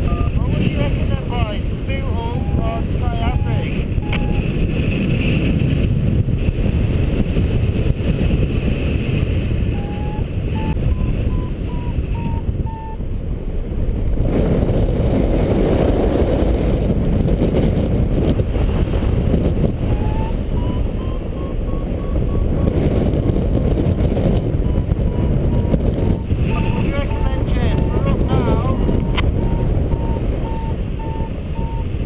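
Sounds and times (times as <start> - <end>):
variometer beeping rising tones: 0.0 - 0.4, 2.1 - 4.5, 9.7 - 13.0, 19.8 - 23.4, 24.4 - 32.0
wind rushing over microphone: 0.0 - 32.0.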